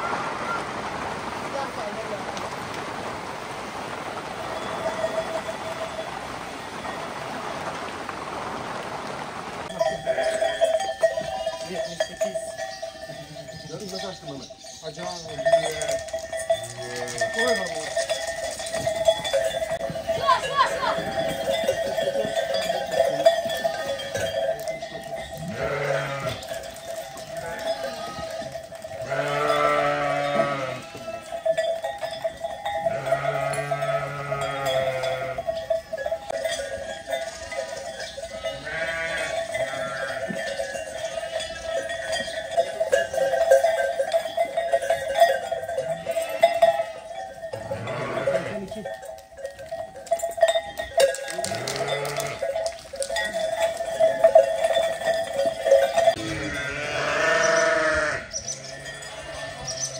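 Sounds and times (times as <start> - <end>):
sheep bleating: 9.8 - 10.6, 16.6 - 17.6, 25.4 - 31.4, 32.9 - 35.5, 38.3 - 42.3, 45.8 - 48.7, 51.4 - 52.5, 56.1 - 59.9.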